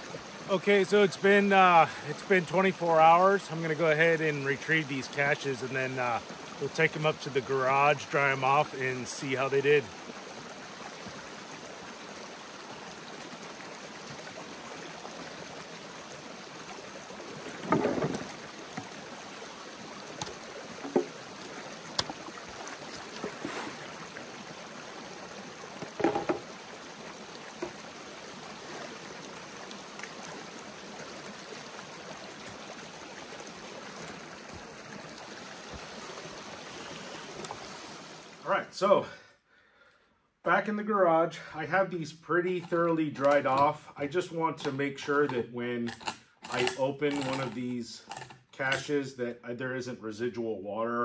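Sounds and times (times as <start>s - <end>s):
creek running over rocks: 0.0s - 39.0s, 40.5s - 49.0s
splashes and knocks: 17.3s - 19.2s, 20.1s - 24.1s, 25.7s - 26.6s, 27.5s - 28.0s.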